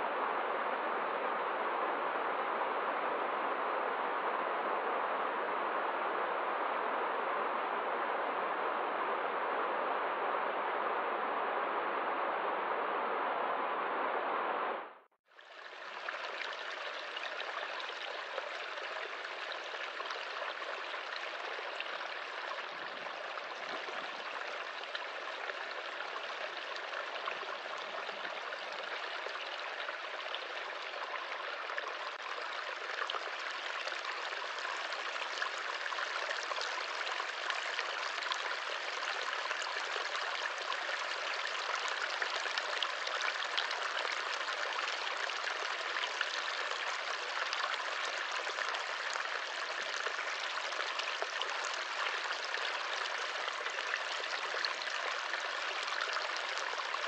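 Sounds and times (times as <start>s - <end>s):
stream trickling over stones: 15.3s - 57.0s.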